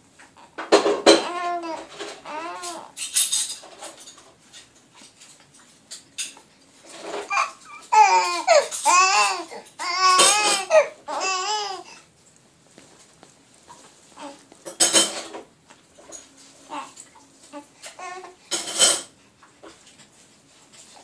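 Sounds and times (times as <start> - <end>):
baby cooing: 0.4 - 3.0, 7.2 - 12.0, 14.2 - 14.5, 16.6 - 18.5.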